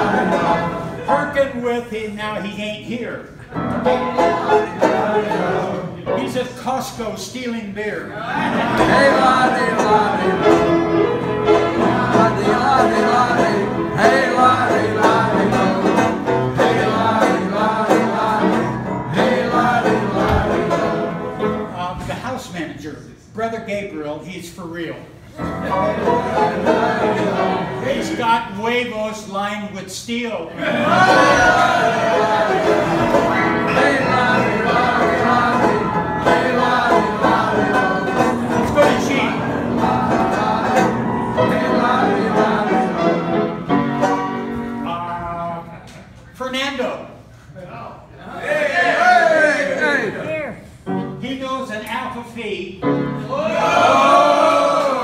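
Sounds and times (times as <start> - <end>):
banjo playing: 0.0 - 1.3, 3.4 - 6.5, 8.4 - 21.8, 25.4 - 28.3, 30.6 - 45.2
voices singing along: 0.0 - 1.3, 3.8 - 6.6, 8.2 - 21.9, 25.4 - 28.5, 30.5 - 43.8, 53.3 - 55.0
upright piano: 0.0 - 22.8, 25.3 - 29.3, 30.6 - 45.8, 48.8 - 55.0.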